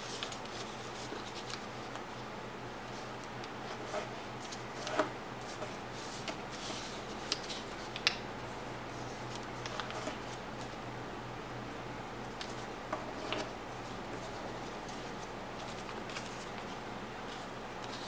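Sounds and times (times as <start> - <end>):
paper crackling as it is folded: 0.0 - 2.2, 2.8 - 8.2, 8.9 - 10.8, 12.3 - 18.0.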